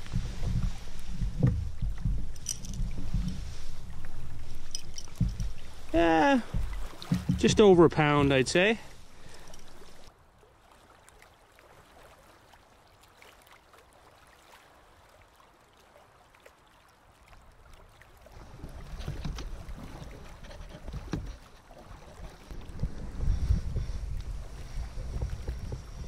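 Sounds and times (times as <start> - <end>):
knocks against canoe: 0.0 - 4.2, 5.0 - 8.3, 18.6 - 24.0
wind rumble on microphone: 0.0 - 7.6, 18.4 - 26.0
water lapping against canoe: 0.0 - 26.0.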